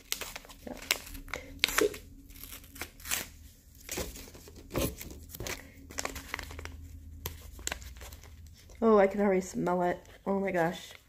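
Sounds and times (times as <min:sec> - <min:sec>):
tea packet crinkling and rustling: 0:00.0 - 0:08.8.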